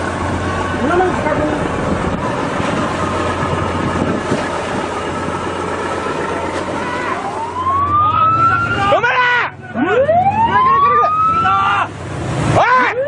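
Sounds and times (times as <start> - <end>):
wind noise on microphone: 0.0 - 6.3
ship engine droning: 0.0 - 13.0
rising siren tone: 5.0 - 9.1, 9.8 - 11.8.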